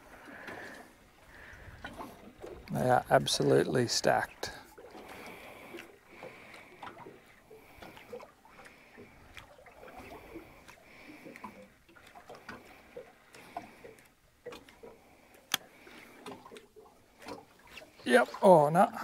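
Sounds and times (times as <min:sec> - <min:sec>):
water lapping against boat hull: 0:00.0 - 0:19.0
light ticks: 0:13.3 - 0:15.7.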